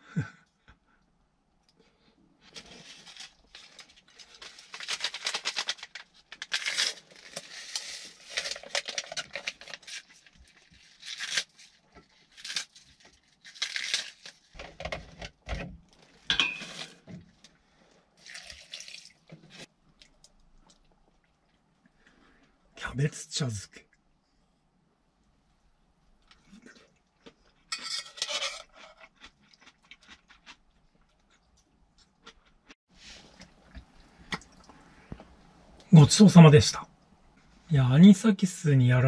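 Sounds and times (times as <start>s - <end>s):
cabbage leaves ripping: 2.5s - 14.5s
pot and utensils clinking: 16.3s - 16.9s, 27.7s - 28.7s.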